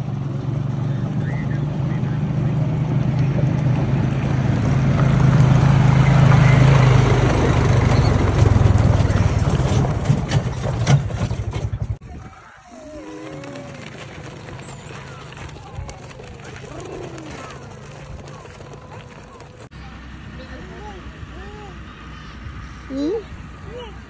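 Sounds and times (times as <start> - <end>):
quad bike engine running: 0.0 - 12.0, 13.0 - 24.0
carts rolling over gravel: 3.0 - 19.7.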